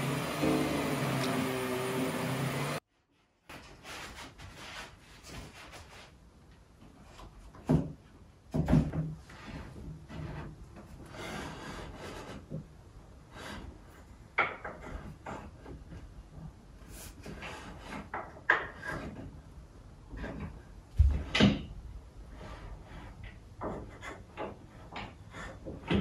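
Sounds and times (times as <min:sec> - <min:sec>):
wood scraping and rubbing: 0:09.2 - 0:12.7, 0:16.8 - 0:21.4, 0:22.2 - 0:26.0.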